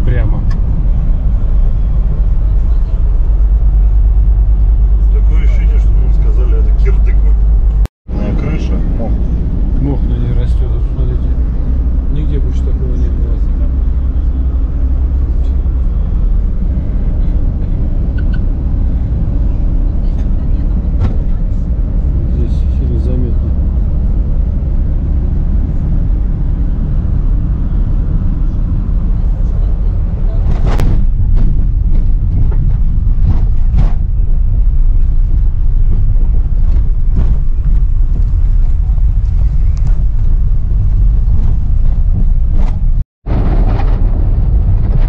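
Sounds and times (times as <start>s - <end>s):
vehicle engine and road noise: 0.0s - 45.0s
knocks and rattles from bumps: 30.4s - 35.5s.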